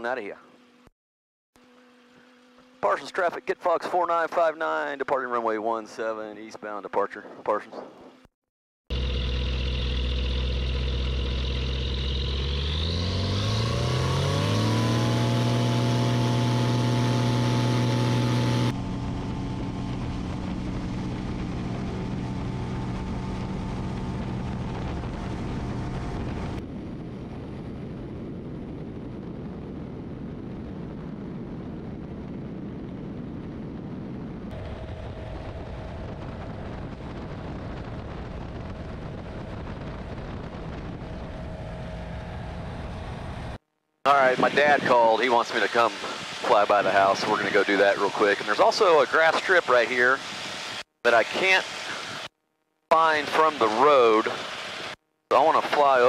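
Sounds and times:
aircraft engine and propeller drone: 0:01.6 - 0:08.3, 0:08.9 - 0:52.3, 0:52.9 - 0:56.0
rushing air: 0:44.2 - 0:52.3.

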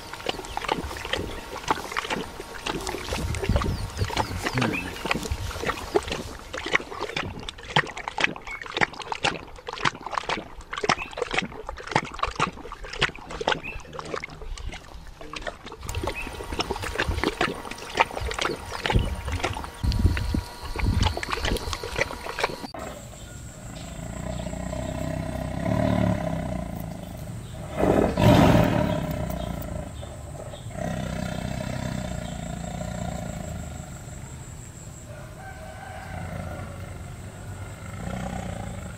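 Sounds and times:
tiger growling: 0:00.0 - 0:07.1, 0:15.8 - 0:34.3, 0:36.2 - 0:38.9
dog lapping water: 0:00.0 - 0:22.8
tiger roar: 0:22.3 - 0:34.3, 0:36.0 - 0:38.9.

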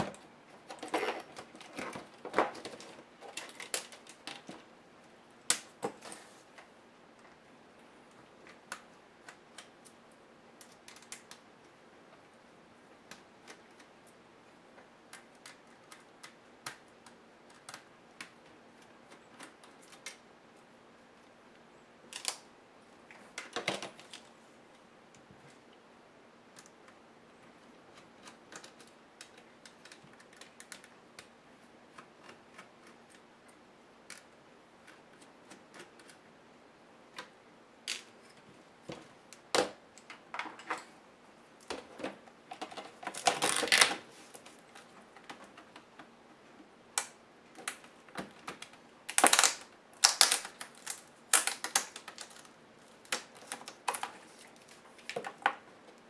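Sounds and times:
plastic and metal parts clicking: 0:00.0 - 0:04.7, 0:10.6 - 0:11.4, 0:27.9 - 0:33.2, 0:41.6 - 0:46.1, 0:47.0 - 0:55.6.

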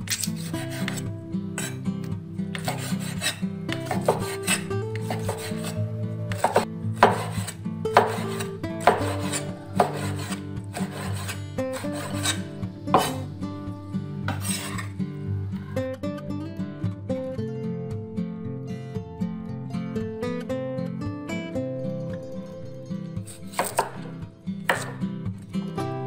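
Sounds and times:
background music: 0:00.0 - 0:26.0
cleaver chopping on wooden board: 0:02.6 - 0:05.7, 0:06.3 - 0:13.2, 0:23.5 - 0:24.0, 0:24.7 - 0:25.0.

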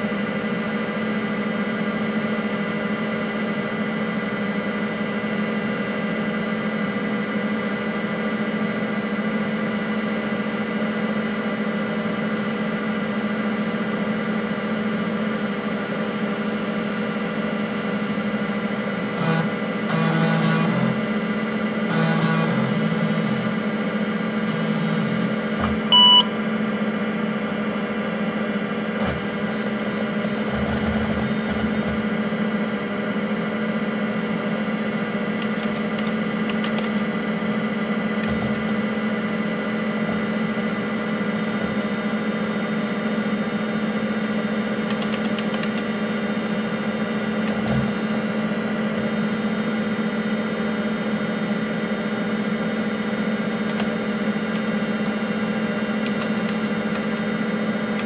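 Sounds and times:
computer cooling fan hum: 0:00.0 - 0:58.0
hard drive spinning: 0:19.0 - 0:23.6, 0:24.4 - 0:26.3, 0:28.8 - 0:32.4, 0:38.0 - 0:42.4, 0:53.6 - 0:58.0.

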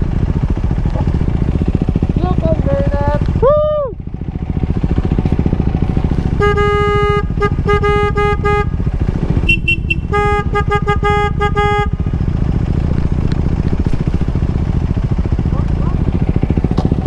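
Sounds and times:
motorcycle engine running: 0:00.0 - 0:17.0
horn tooting quick beeps: 0:06.3 - 0:08.7, 0:09.4 - 0:12.0.

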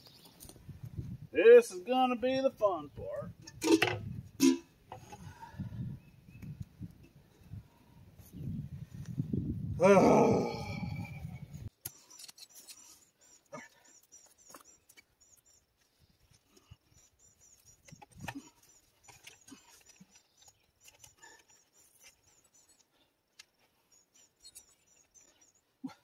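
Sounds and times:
pipe knocking and scraping: 0:03.4 - 0:05.2
faint high chirping: 0:10.6 - 0:26.0.

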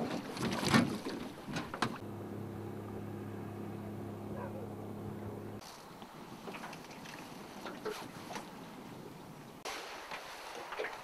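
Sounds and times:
boat motor running: 0:01.9 - 0:05.6.

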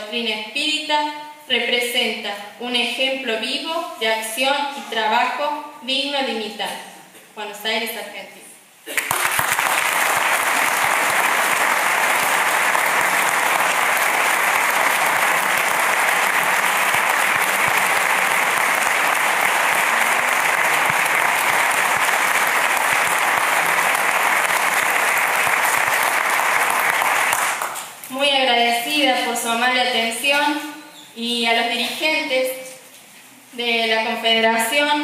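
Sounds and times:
audience applauding: 0:08.9 - 0:27.9.

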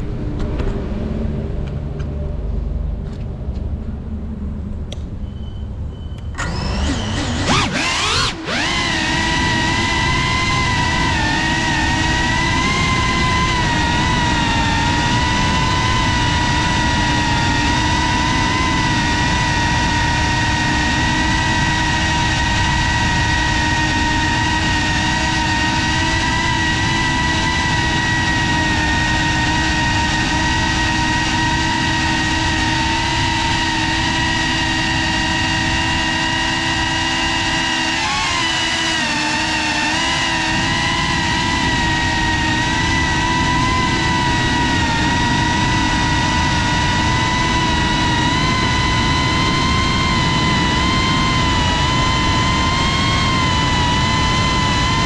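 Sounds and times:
drone motors whining: 0:00.0 - 0:55.0.

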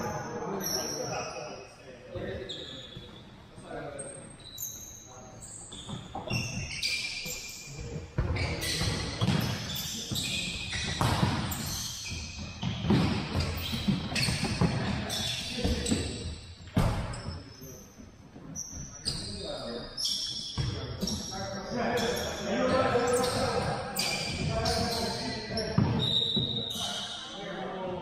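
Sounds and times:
shoes squeaking on gym floor: 0:02.2 - 0:27.4
soccer ball kicked and bouncing: 0:07.8 - 0:15.0.

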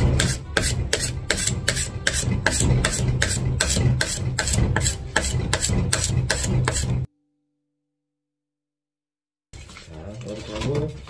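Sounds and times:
wax scraper scraping snowboard: 0:00.0 - 0:07.1.

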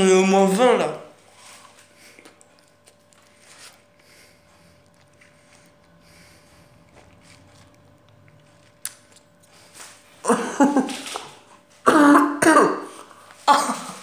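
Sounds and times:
boy coughing hard: 0:10.2 - 0:10.9, 0:11.8 - 0:14.0.

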